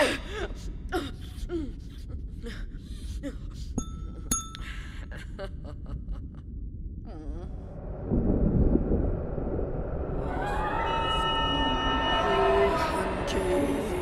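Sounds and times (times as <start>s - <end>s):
low rumble: 4.8s - 14.0s.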